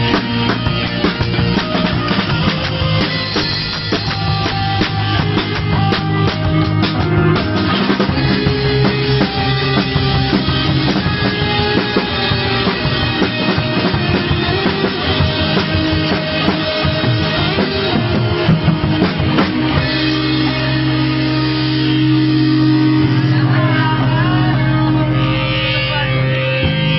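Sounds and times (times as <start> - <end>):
busy rock drumming: 0.0 - 26.9
electric guitar chords: 0.0 - 26.9.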